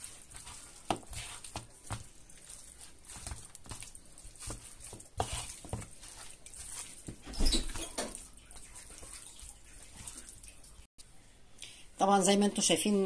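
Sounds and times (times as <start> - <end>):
chicken squishing by hand: 0.0 - 10.9.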